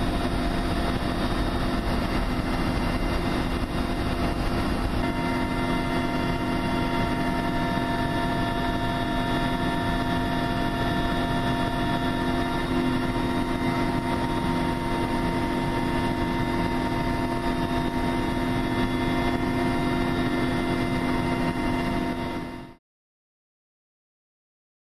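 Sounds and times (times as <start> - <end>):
aircraft cabin engine drone: 0.0 - 22.8.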